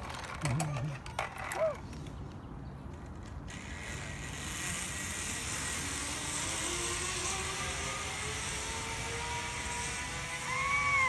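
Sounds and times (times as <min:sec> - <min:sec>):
pulleys whirring on cable: 0:03.5 - 0:11.0
faint rising whine: 0:05.2 - 0:11.0.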